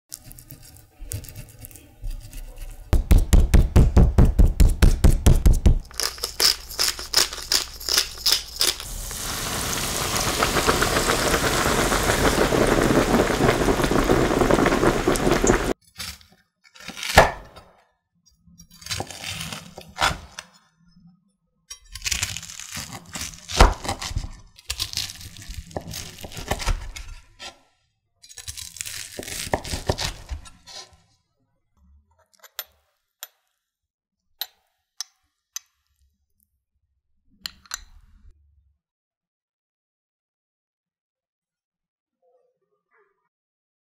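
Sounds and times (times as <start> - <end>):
meat tenderizer pounding meat: 3.0 - 7.8
knife crunching through crisp crust: 5.8 - 9.2, 15.9 - 17.5, 18.7 - 20.5, 21.9 - 27.6, 28.3 - 31.1
pork deep-frying in oil sizzle: 7.0 - 15.8.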